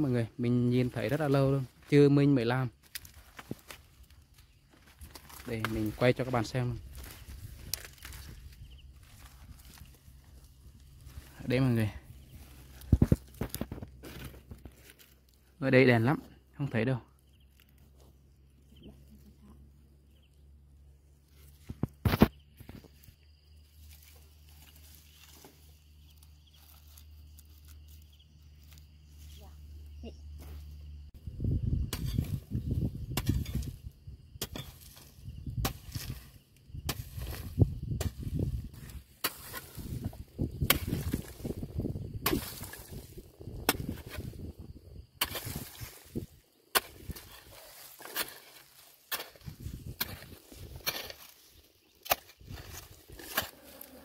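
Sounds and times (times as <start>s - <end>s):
loose earth rustling: 0.0s - 54.0s
digging tool chopping into soil: 21.7s - 22.8s, 31.9s - 33.8s, 34.4s - 44.4s, 45.2s - 51.4s, 52.0s - 53.6s.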